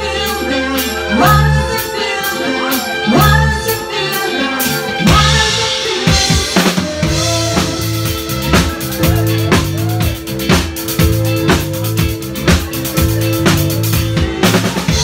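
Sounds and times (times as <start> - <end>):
drum kit beat: 0.0 - 15.0
pulsing bass line: 4.9 - 15.0.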